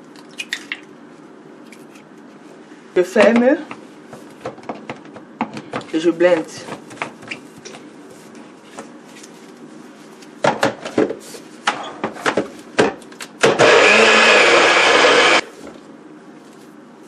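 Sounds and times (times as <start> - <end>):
blender motor chopping: 13.4 - 15.4.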